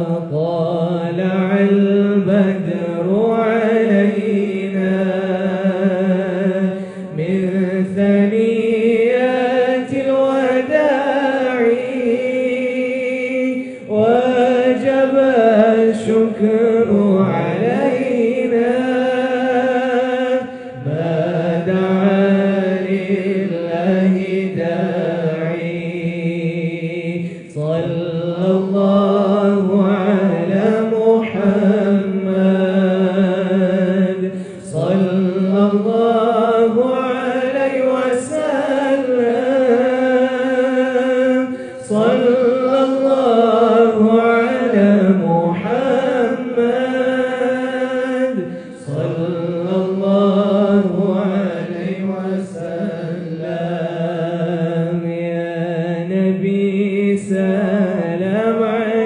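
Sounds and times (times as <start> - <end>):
group chanting: 45.7 - 54.6.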